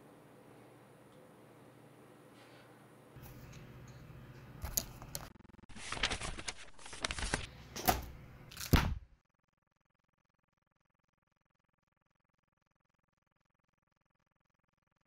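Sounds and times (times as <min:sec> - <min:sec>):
notebook pages rustling: 0:04.7 - 0:08.9.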